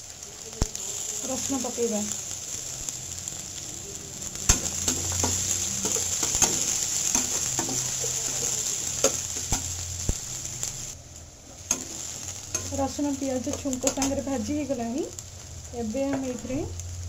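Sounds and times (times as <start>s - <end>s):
onion sizzling in oil: 0.0s - 17.0s
metal spatula scraping a pan: 4.5s - 9.6s.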